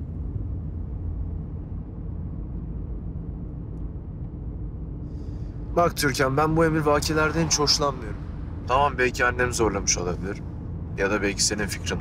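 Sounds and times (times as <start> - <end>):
car engine rumble: 0.0 - 12.0
road noise: 5.6 - 12.0.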